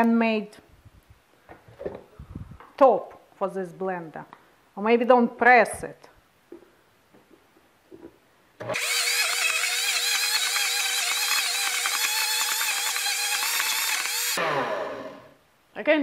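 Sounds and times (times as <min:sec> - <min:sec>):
blender motor running hard: 0:08.6 - 0:15.3
tamper pushing thick nut butter: 0:08.7 - 0:14.4.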